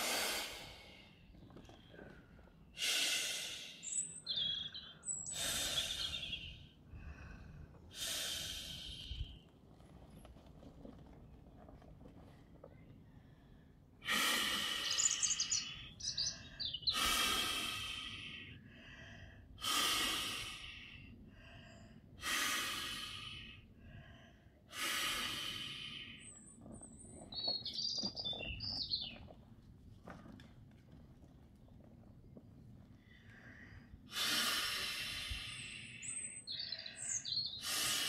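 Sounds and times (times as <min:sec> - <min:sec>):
birds chirping: 0:00.7 - 0:06.8, 0:12.6 - 0:18.1, 0:25.2 - 0:29.5, 0:31.6 - 0:38.0.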